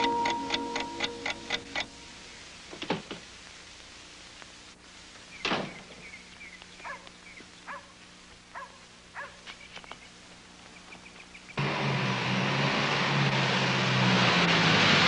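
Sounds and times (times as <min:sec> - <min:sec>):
distant dog barking: 0:06.8 - 0:09.5.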